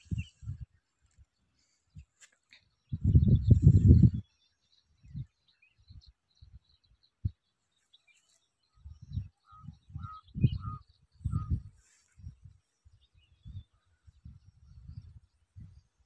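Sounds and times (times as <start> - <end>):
wind buffeting microphone: 0.0 - 0.8, 2.8 - 7.5, 8.7 - 16.0.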